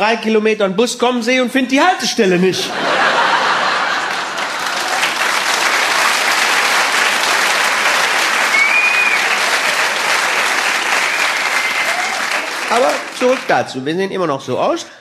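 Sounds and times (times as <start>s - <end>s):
audience applauding: 2.9s - 13.8s.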